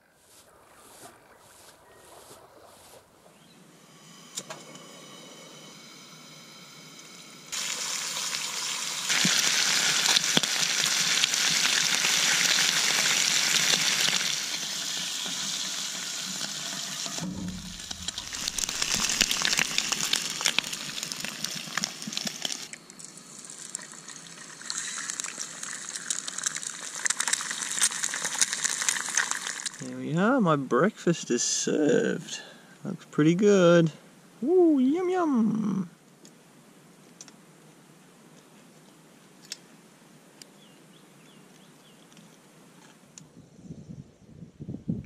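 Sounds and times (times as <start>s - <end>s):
food sizzling in a pan: 7.5s - 29.8s.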